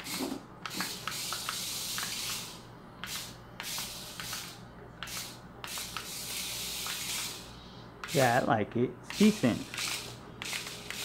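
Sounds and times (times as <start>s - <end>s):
toy car electric motor whirring: 0.0s - 8.4s, 9.1s - 11.0s.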